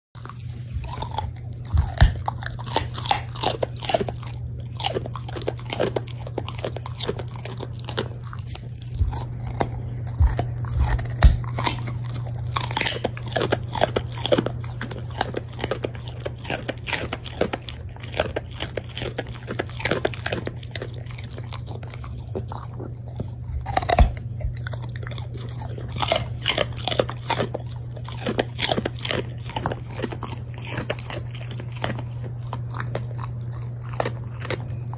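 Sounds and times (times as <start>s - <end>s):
dog crunching a carrot: 0.2s - 34.9s
steady low hum: 0.2s - 34.9s.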